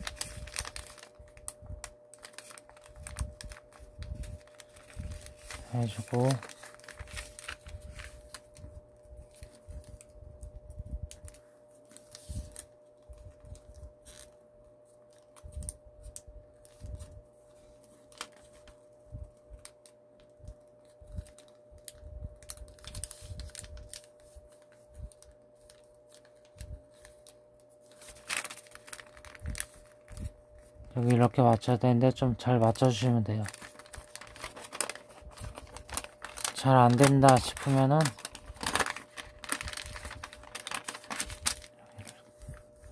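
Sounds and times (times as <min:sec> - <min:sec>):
faint steady hum: 0:00.0 - 0:42.9
paper crackling as it is folded: 0:00.0 - 0:42.9.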